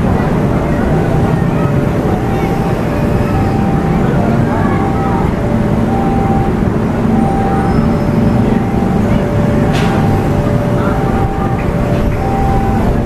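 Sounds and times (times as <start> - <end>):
motorbike traffic: 0.0 - 13.0
passing train rumble: 0.0 - 13.0
level crossing two-tone alarm: 0.8 - 13.0.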